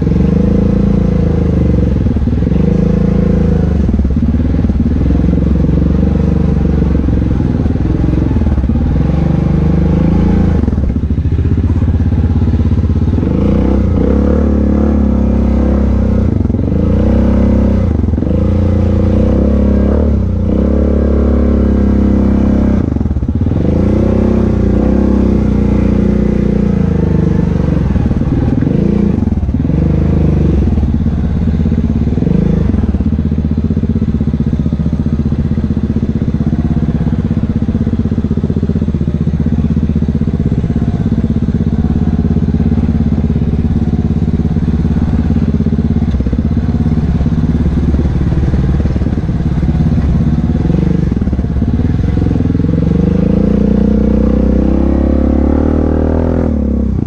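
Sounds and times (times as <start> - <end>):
engine revving: 0.0 - 57.0.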